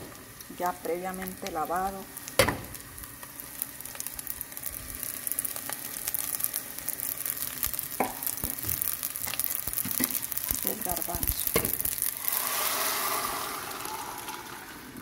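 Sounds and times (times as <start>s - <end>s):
onion sizzling and crackling: 0.0s - 15.0s
bulgur poured into pot: 11.4s - 15.0s.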